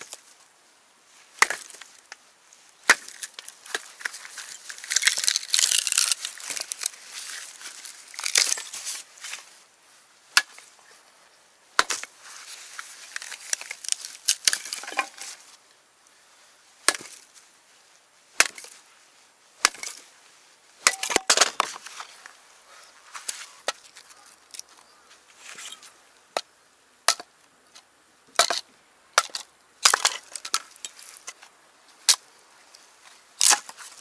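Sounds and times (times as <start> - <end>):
axe chopping firewood: 1.4 - 1.9, 2.8 - 4.1, 4.8 - 6.9, 10.3 - 10.6, 11.8 - 12.2, 13.2 - 15.3, 16.8 - 17.2, 18.3 - 18.8, 19.6 - 20.0, 20.8 - 21.8, 27.1 - 27.4, 28.3 - 31.0, 33.4 - 33.8
wood splintering and crackling: 2.8 - 9.1, 11.8 - 15.4, 29.2 - 31.4, 33.4 - 34.0.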